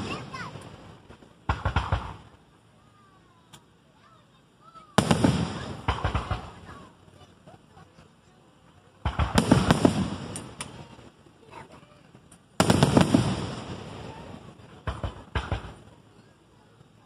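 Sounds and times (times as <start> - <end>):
sharp fireworks bangs: 0.0 - 2.4, 4.8 - 6.9, 9.0 - 11.1, 12.6 - 16.1
fireworks booming and crackling: 0.0 - 2.5, 4.8 - 8.0, 8.9 - 16.2.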